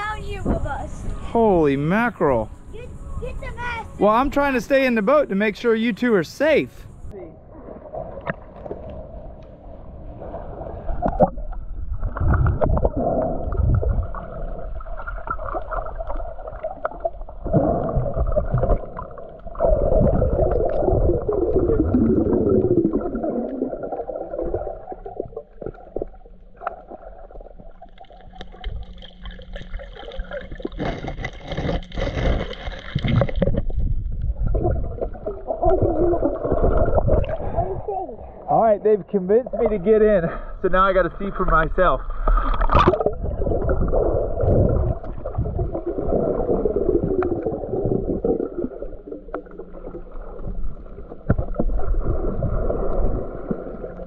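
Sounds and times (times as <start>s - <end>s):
muffled underwater gurgling: 10.4s - 38.6s, 39.4s - 54.0s.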